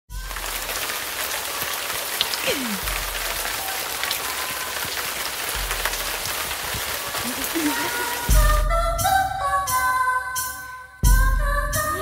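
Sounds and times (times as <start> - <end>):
rain-like hiss: 0.1 - 9.2.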